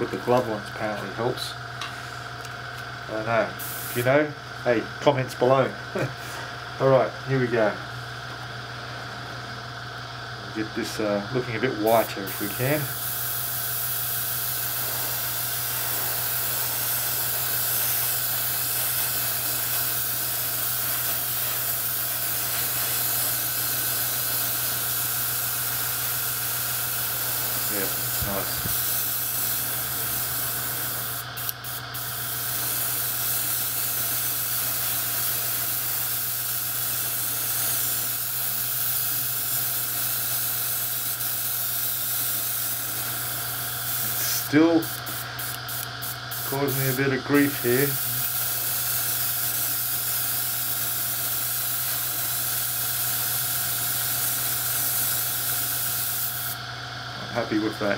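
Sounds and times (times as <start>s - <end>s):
airbrush hissing: 3.6s - 4.2s, 11.7s - 56.6s.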